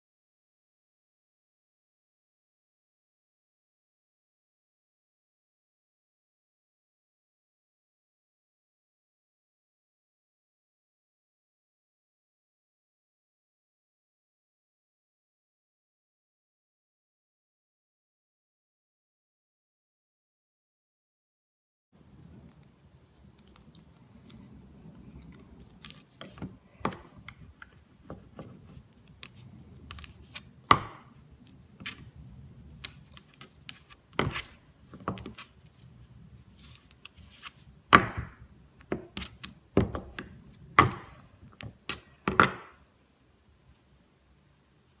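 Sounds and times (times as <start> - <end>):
faint low hum: 22.0 - 45.0.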